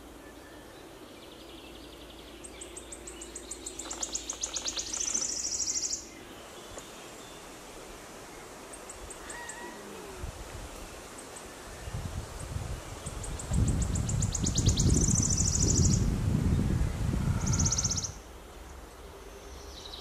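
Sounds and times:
warbler singing trill: 0:00.0 - 0:07.5, 0:10.8 - 0:18.2.

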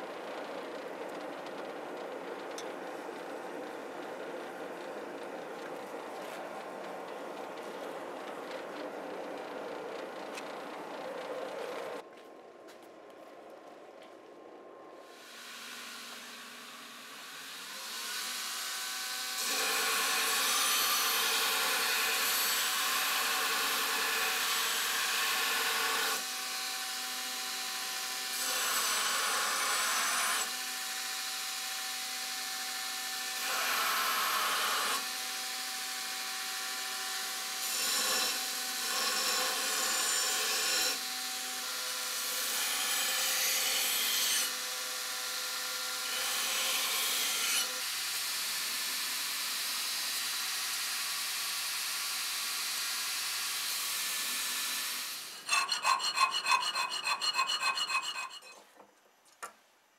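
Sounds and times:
steel grinding on belt: 0:55.3 - 0:58.7
belt grinder running: 0:55.4 - 0:58.6.

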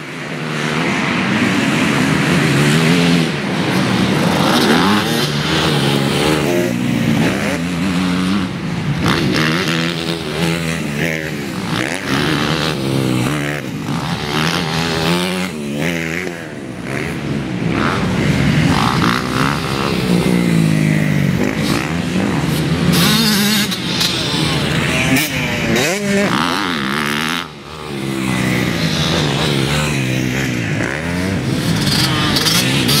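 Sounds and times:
dirt bike engines revving: 0:00.0 - 0:33.0.

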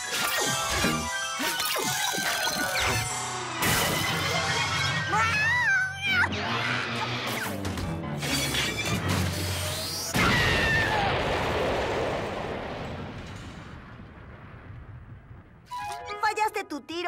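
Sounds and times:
background music: 0:00.0 - 0:09.6, 0:15.7 - 0:17.0
cartoon explosion blast: 0:10.1 - 0:15.6.

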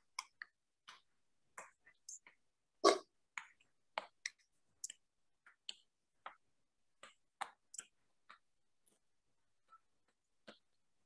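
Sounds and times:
faint clicks and taps: 0:00.0 - 0:02.5, 0:03.3 - 0:11.0.

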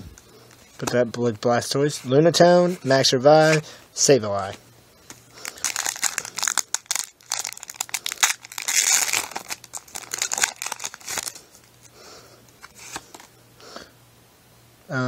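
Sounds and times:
foil wrapper crinkling: 0:05.3 - 0:11.9.

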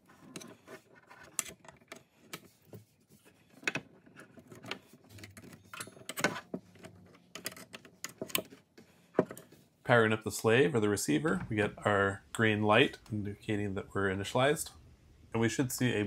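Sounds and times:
cable rustling: 0:00.0 - 0:09.8.

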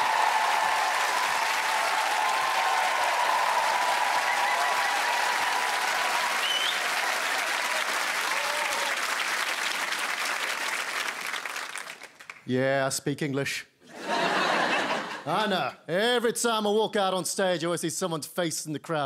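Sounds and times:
audience applauding and cheering: 0:00.0 - 0:12.5.

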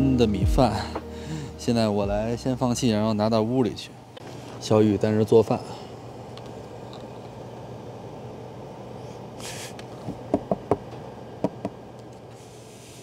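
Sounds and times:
steady low hum: 0:00.0 - 0:13.0
short hiss: 0:09.0 - 0:09.9, 0:12.3 - 0:13.0.

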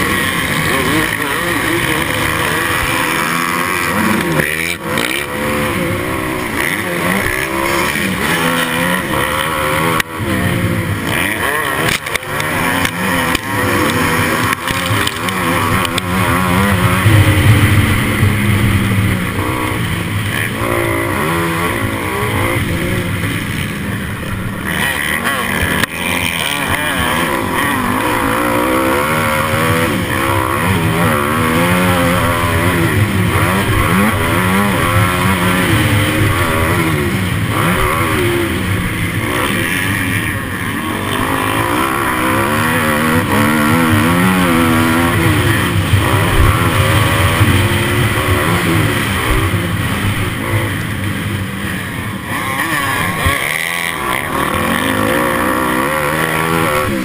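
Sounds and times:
motorbike engine revving: 0:00.0 - 0:57.0
wind rushing over microphone: 0:14.8 - 0:20.1.

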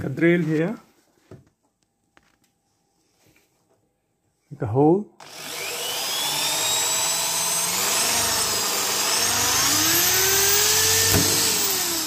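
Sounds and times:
cordless drill whining: 0:05.2 - 0:12.0.

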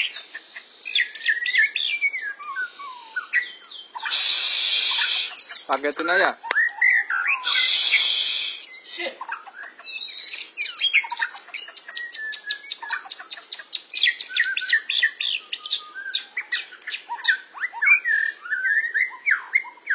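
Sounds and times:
birds singing whistles and chirps: 0:00.0 - 0:19.9
loud harsh hiss: 0:04.1 - 0:06.3, 0:07.4 - 0:09.0.

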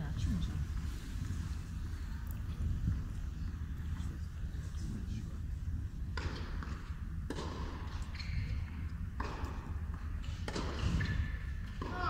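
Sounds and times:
tennis ball hit by racket: 0:06.2 - 0:07.9, 0:10.4 - 0:12.0.

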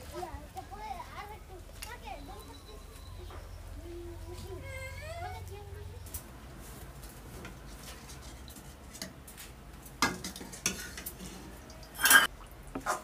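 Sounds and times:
ladle clinking against metal pot: 0:11.9 - 0:12.3.

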